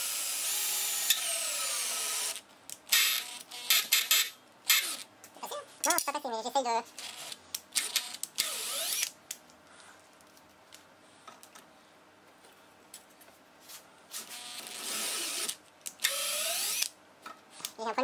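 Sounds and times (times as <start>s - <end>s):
electric drill boring into metal: 0.0s - 5.0s, 7.0s - 9.1s, 14.4s - 16.9s.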